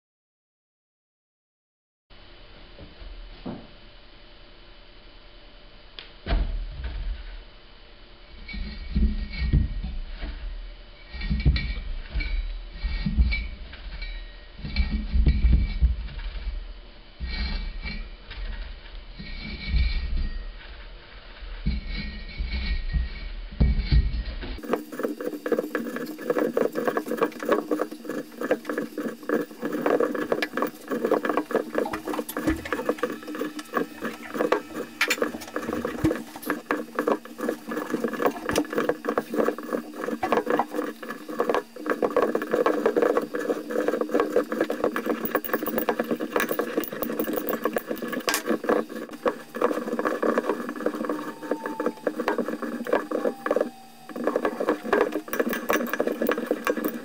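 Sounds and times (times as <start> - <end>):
crackling and rustling of filling: 24.6 - 57.0.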